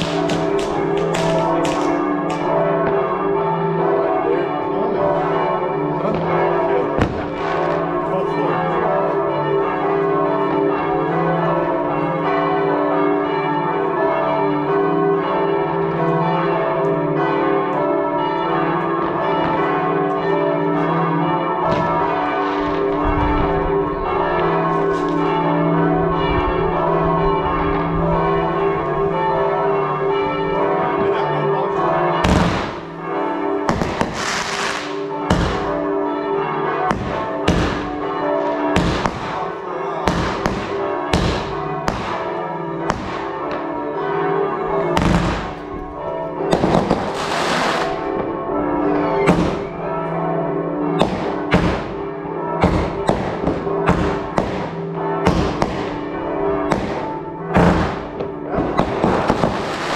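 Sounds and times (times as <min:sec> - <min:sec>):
firework bangs: 0:00.0 - 0:02.5, 0:32.2 - 0:32.9, 0:33.6 - 0:35.8, 0:36.9 - 0:38.0, 0:38.8 - 0:39.5, 0:40.1 - 0:43.6, 0:45.0 - 0:45.6, 0:46.5 - 0:48.3, 0:49.3 - 0:49.7, 0:51.0 - 0:52.0, 0:52.6 - 0:56.0, 0:56.6 - 0:59.9
church bells ringing: 0:00.0 - 0:59.9.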